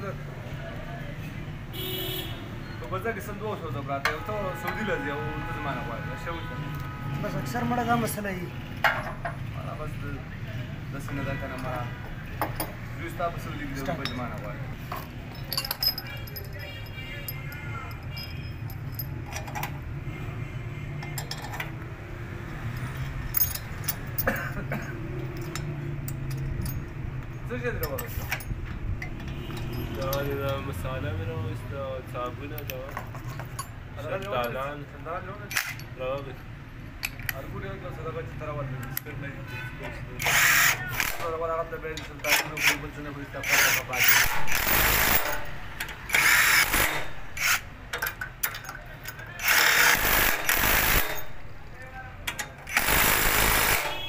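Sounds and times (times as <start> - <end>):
metal nuts and bolts clinking: 8.8 - 9.5, 11.0 - 12.8, 13.7 - 20.0, 21.0 - 21.9, 22.7 - 30.9, 32.4 - 34.8, 35.4 - 37.4, 40.2 - 54.0
cordless drill spinning: 40.2 - 41.1, 46.1 - 47.6, 49.4 - 51.0.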